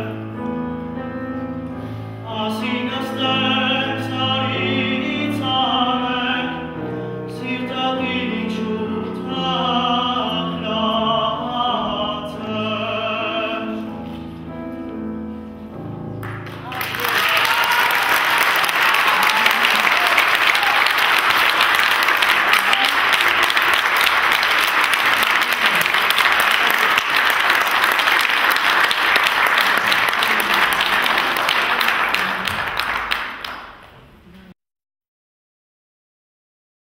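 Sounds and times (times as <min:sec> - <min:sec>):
audience applauding: 0:16.2 - 0:34.2.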